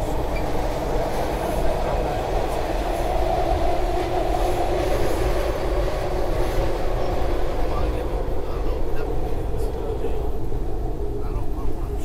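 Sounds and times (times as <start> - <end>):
constant train hum: 0.0 - 12.0
train wheels rumbling on rails: 0.0 - 12.0.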